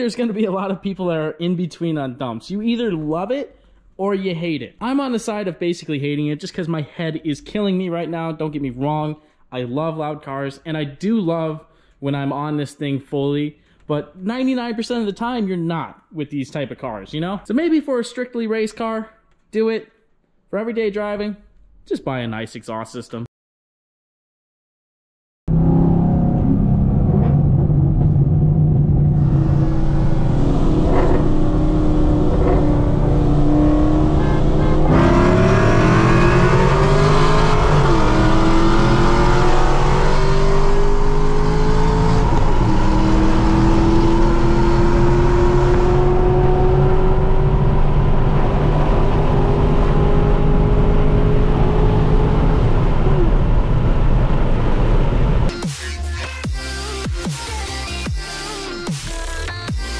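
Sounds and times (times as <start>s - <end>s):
car engine revving through gears: 25.5s - 55.5s.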